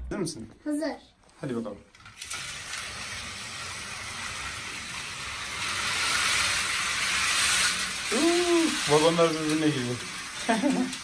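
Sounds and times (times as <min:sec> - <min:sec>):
toy train motor whirring: 0:01.9 - 0:11.0.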